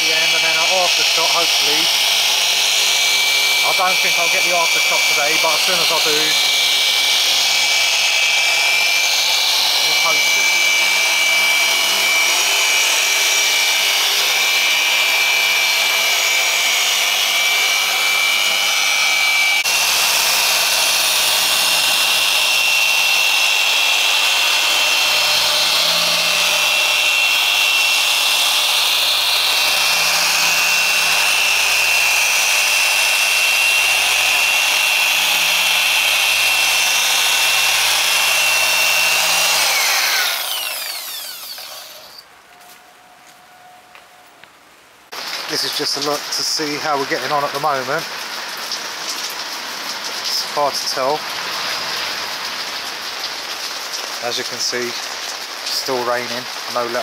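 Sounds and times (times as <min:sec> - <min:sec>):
polisher electric whine: 0:00.0 - 0:44.1.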